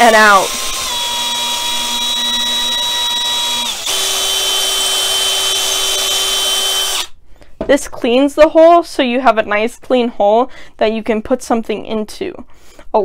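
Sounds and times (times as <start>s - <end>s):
cordless drill whining: 0.0s - 7.1s.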